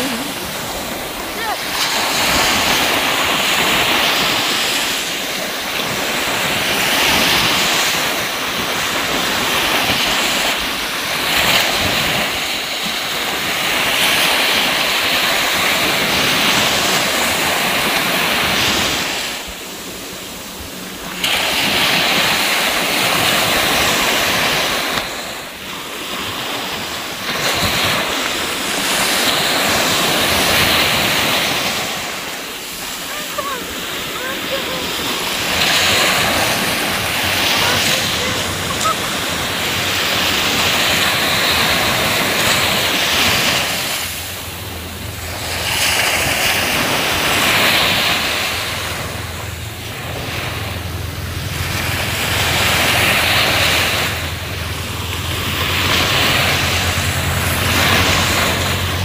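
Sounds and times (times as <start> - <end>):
surf rushing: 0.0 - 59.0
wind: 0.0 - 59.0.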